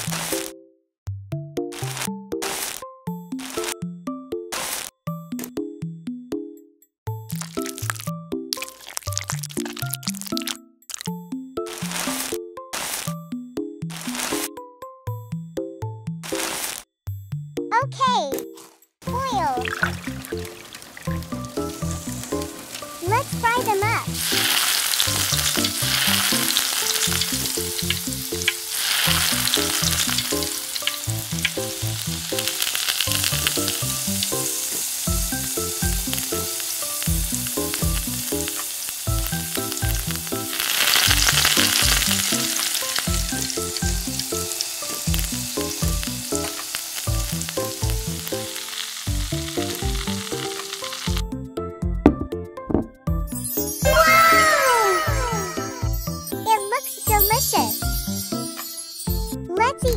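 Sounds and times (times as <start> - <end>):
light music: 1.3 - 16.6, 17.2 - 59.9
food sizzling in hot oil: 7.4 - 13.2, 19.1 - 51.3, 53.4 - 59.2.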